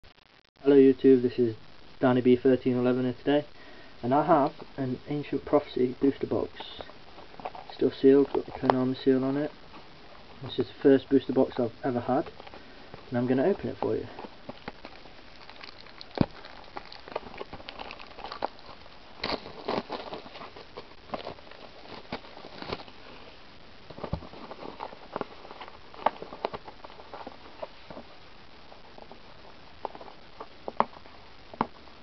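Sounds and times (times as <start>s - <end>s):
plastic shrink-wrap crinkling: 11.2s - 32.0s.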